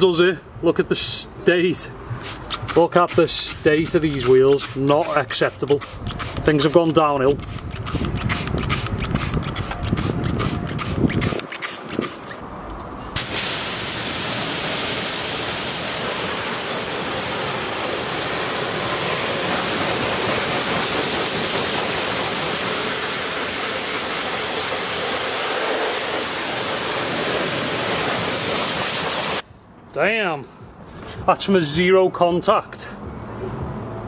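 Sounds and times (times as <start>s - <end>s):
pressure washer water spray hiss: 2.1s - 12.3s, 13.2s - 29.4s.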